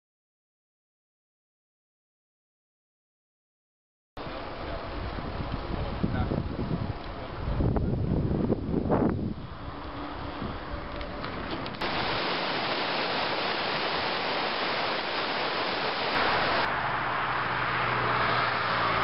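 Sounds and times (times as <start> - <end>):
dull rushing noise: 4.2 - 19.0
stream rushing over rocks: 11.8 - 17.0.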